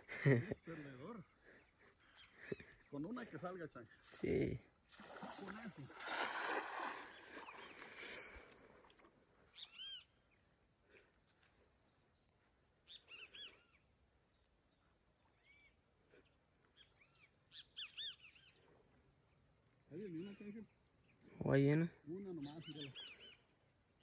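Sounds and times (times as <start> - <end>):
faint bird chirps: 1.0 - 4.1, 9.4 - 10.5, 11.8 - 23.6.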